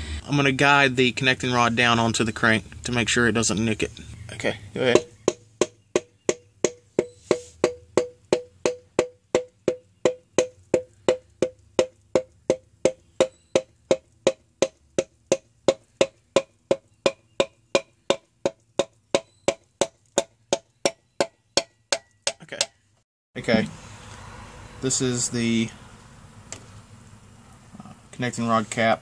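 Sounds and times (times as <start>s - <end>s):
hammer tapping piston: 4.9s - 22.8s.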